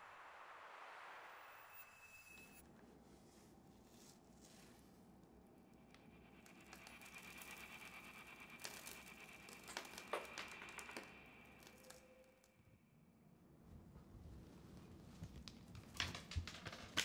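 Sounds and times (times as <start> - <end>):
faint steady high tone: 0.0 - 2.6
faint crinkling: 13.6 - 17.0.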